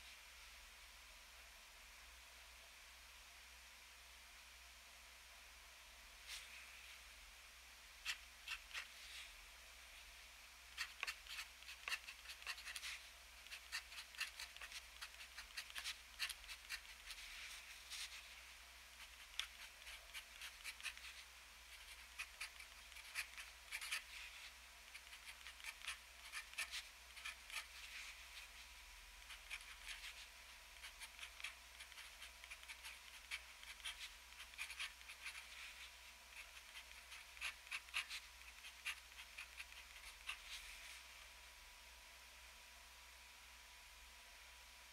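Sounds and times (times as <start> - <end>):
pen nib scratching on paper: 8.0 - 9.0, 10.7 - 17.3, 19.0 - 28.6, 29.2 - 40.6.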